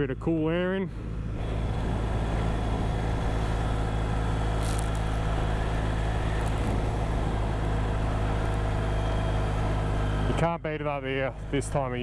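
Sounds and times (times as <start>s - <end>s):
motorcycle engine cruising: 1.4s - 9.7s
wind noise: 4.4s - 7.6s.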